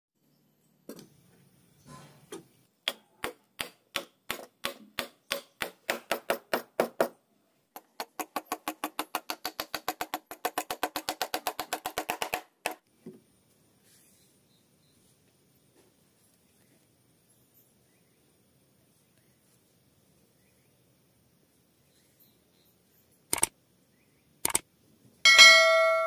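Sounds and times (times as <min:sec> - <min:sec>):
rapid sharp ringing knocks: 0:25.3 - 0:26.0.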